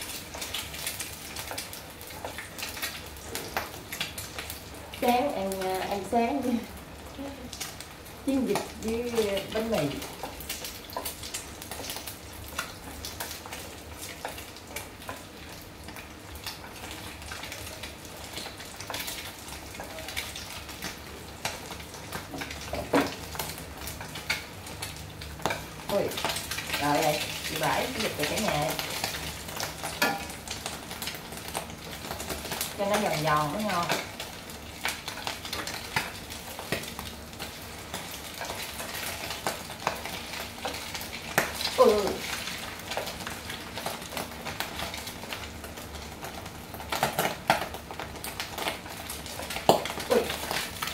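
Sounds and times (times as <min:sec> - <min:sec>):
egg sizzling in frying pan: 0:00.0 - 0:50.9
chopsticks tapping and scraping pan: 0:29.8 - 0:30.4.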